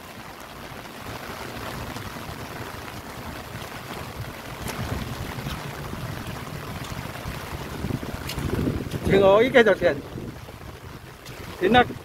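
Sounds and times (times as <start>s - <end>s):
rain hissing: 0.0s - 12.0s
wind buffeting microphone: 1.0s - 12.0s.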